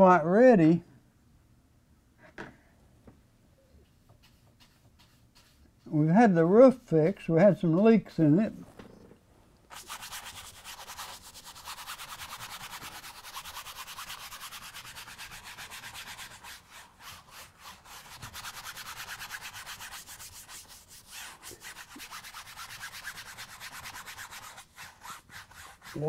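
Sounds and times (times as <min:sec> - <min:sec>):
paintbrush scrubbing canvas: 0:03.8 - 0:07.0, 0:09.7 - 0:26.0.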